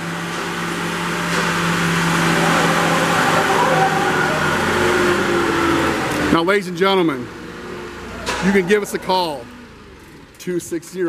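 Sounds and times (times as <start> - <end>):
forklift engine running: 0.0 - 11.0.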